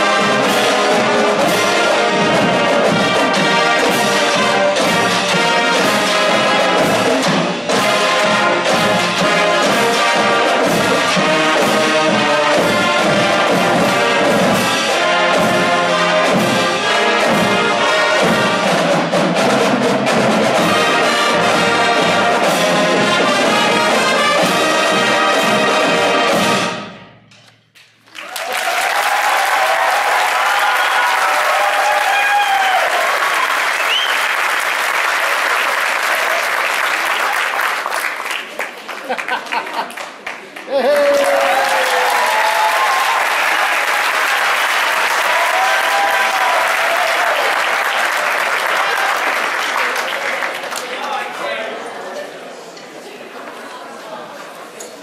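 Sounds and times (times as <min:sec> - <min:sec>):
snare and bass drums: 0:00.0 - 0:26.7
marching band playing: 0:00.0 - 0:27.4, 0:41.6 - 0:50.6
audience applauding: 0:28.0 - 0:51.6.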